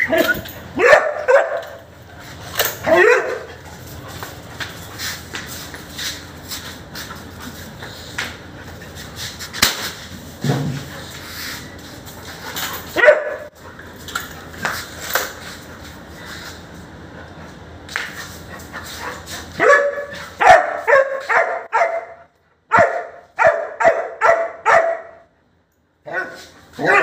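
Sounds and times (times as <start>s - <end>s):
dog barking: 0.8s - 1.9s, 2.8s - 3.5s, 13.0s - 13.5s, 19.6s - 25.3s, 26.0s - 27.0s.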